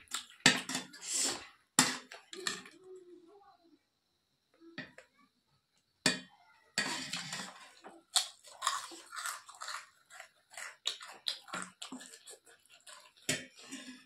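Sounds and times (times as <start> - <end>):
chewing and crunching food: 0.0 - 1.0, 7.0 - 14.0.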